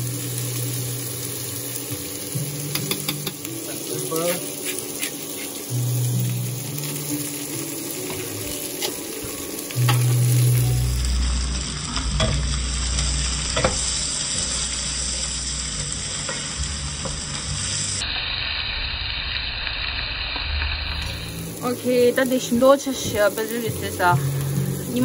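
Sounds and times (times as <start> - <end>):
meat and onions sizzling: 0.0 - 25.0
wooden spatula scraping pot: 4.2 - 5.7.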